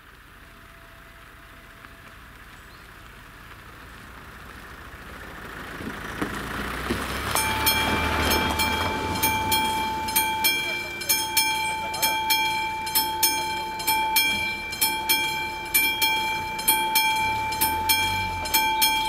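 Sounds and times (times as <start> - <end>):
car passing: 0.0 - 19.0
electronic warning bell ringing: 7.3 - 19.0.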